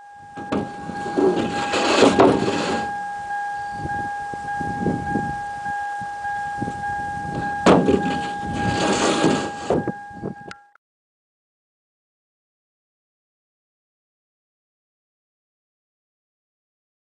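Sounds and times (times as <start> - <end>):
sawmill machinery whining: 0.0 - 10.6
knocks and rattles: 0.4 - 2.9, 7.3 - 9.9.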